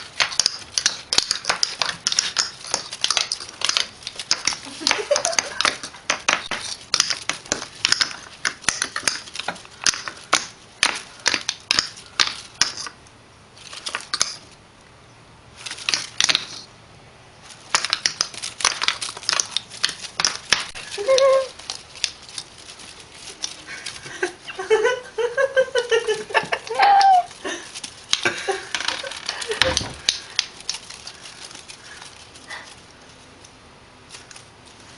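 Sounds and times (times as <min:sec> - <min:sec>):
clicking and tapping on wooden floor: 0:00.0 - 0:13.0, 0:27.8 - 0:30.9
kitten crying: 0:26.7 - 0:27.3.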